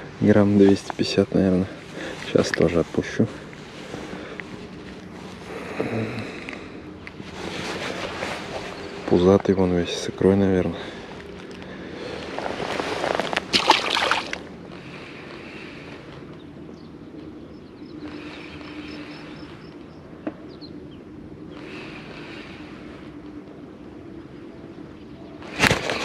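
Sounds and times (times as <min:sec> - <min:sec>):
light wind: 0:00.0 - 0:26.0
small waves washing on shore: 0:12.7 - 0:14.5.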